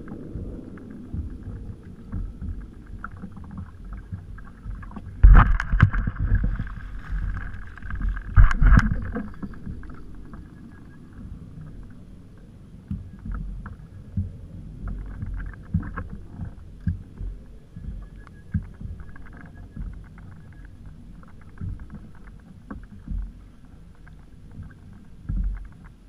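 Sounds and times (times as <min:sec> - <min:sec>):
fish thrashing and splashing: 0:00.0 - 0:10.5
low rumble: 0:00.0 - 0:26.0
water lapping at kayak hull: 0:00.0 - 0:26.0.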